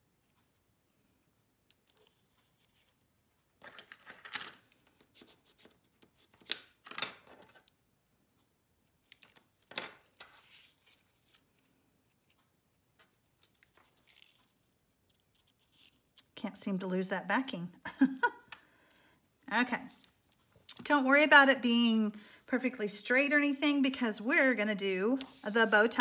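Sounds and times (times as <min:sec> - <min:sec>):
paper rustling and scraping: 0:10.0 - 0:12.4, 0:25.0 - 0:26.0.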